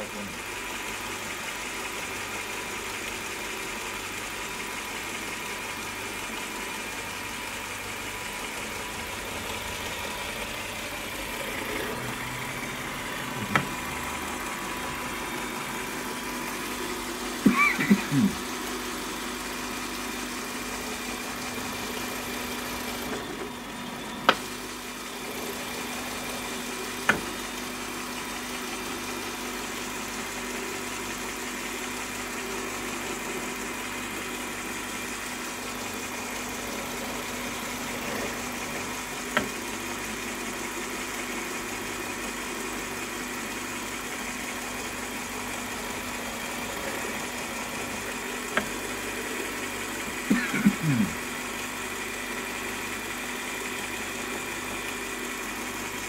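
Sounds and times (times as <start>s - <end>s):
drill press motor humming: 8.2s - 18.5s, 44.1s - 53.4s.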